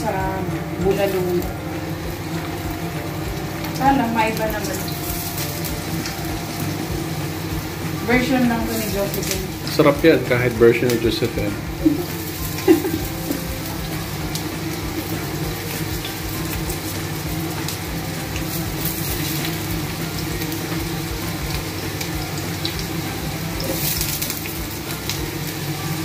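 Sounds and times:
potatoes sizzling in oil: 0:00.0 - 0:26.0.

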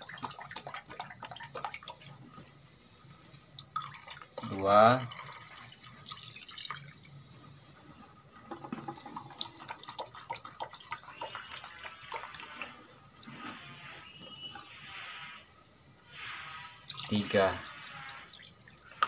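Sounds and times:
liquid pouring into glass: 0:03.7 - 0:04.3.

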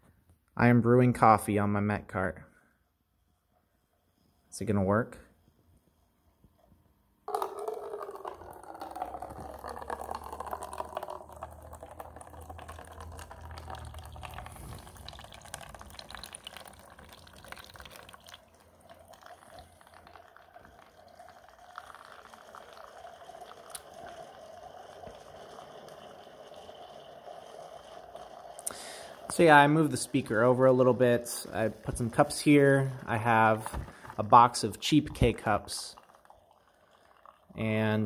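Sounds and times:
coffee maker low hum: 0:07.3 - 0:36.4
coffee pouring into paper cup: 0:07.3 - 0:38.0.

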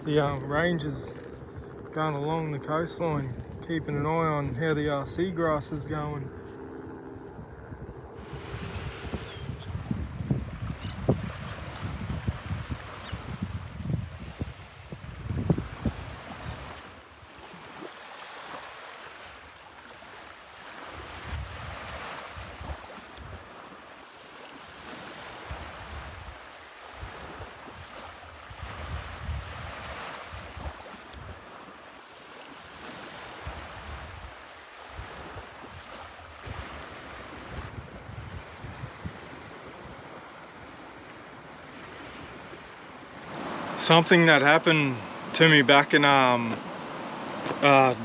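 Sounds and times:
small waves washing on beach: 0:00.0 - 0:01.4, 0:08.2 - 0:48.0
wind gusting on microphone: 0:00.0 - 0:17.9, 0:20.9 - 0:23.6, 0:25.4 - 0:31.6, 0:32.8 - 0:48.0.

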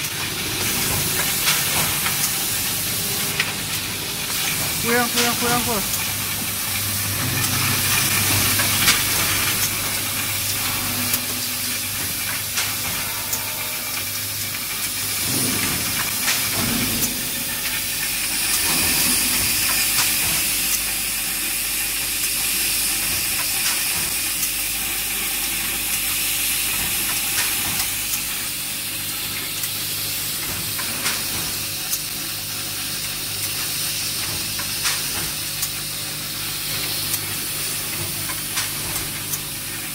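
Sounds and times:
low machine hum: 0:00.0 - 0:21.3
packaging machine hissing and clicking: 0:00.0 - 0:39.9.

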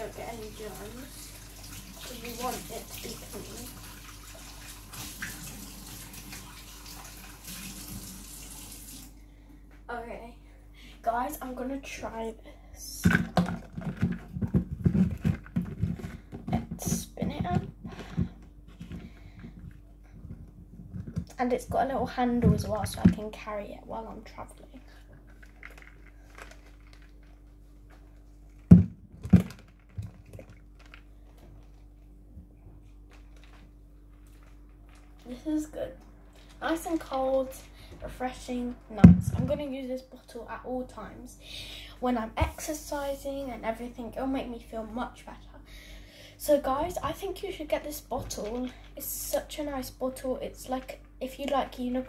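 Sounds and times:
tap water running: 0:00.0 - 0:09.2
faint steady hum: 0:00.0 - 0:52.0
plastic bottle thumps: 0:13.0 - 0:19.6, 0:28.7 - 0:30.5.

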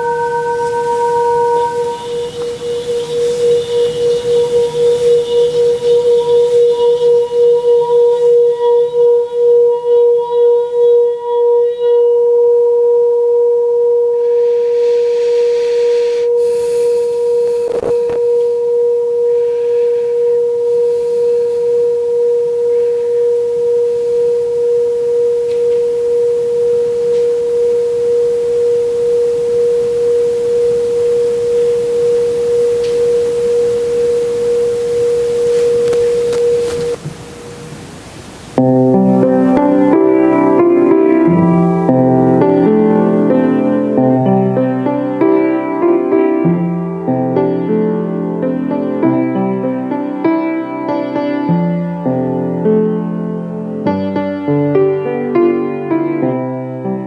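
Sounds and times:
singing bowl ringing: 0:00.0 - 0:37.0.

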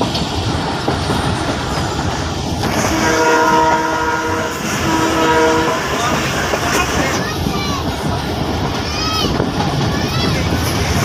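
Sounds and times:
train carriage running on rails: 0:00.0 - 0:11.0
train horn blasts: 0:02.7 - 0:07.1.

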